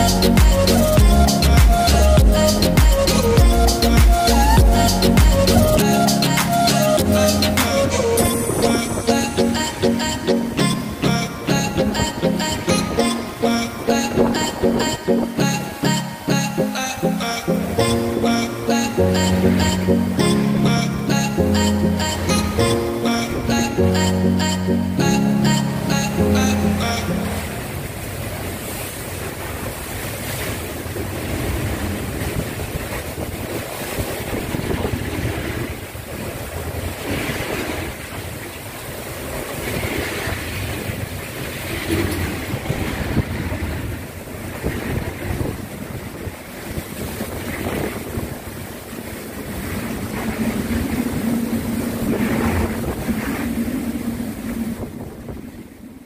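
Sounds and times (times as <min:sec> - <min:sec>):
wind gusting on microphone: 0:27.4 - 0:56.0.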